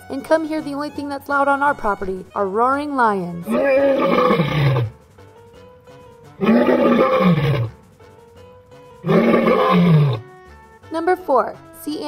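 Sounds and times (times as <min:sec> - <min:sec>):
quiet background music: 0:00.0 - 0:12.0
lion roaring: 0:03.4 - 0:05.0, 0:06.4 - 0:07.8, 0:09.0 - 0:10.3.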